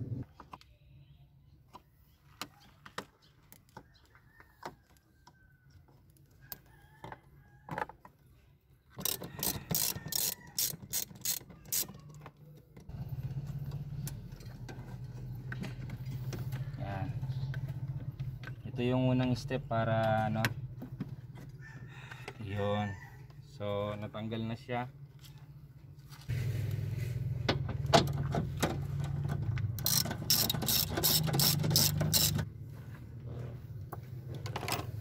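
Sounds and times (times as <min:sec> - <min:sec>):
hand ratchet clicking: 0:09.0 - 0:12.0, 0:29.8 - 0:32.4.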